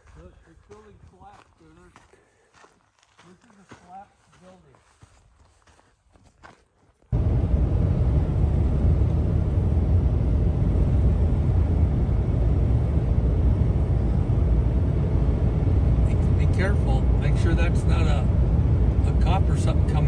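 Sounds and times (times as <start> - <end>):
truck driving on dirt road: 7.1 - 20.0.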